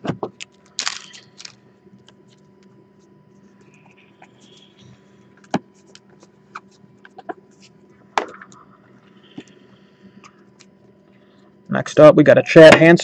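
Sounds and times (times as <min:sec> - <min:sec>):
faint steady hum: 0:00.0 - 0:13.0
foil wrapper crinkling: 0:00.4 - 0:01.6.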